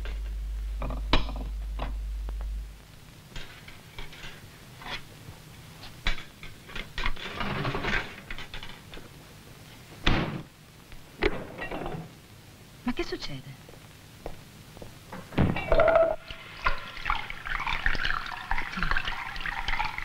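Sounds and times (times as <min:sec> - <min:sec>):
steady low hum: 0:00.0 - 0:07.2
dishes clinking: 0:11.2 - 0:12.1, 0:15.4 - 0:17.1.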